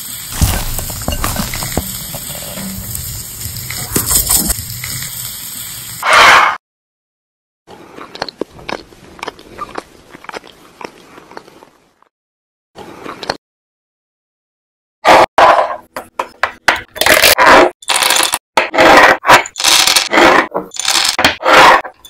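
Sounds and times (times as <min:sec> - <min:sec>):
sizzling hiss with pops: 0:00.0 - 0:06.0.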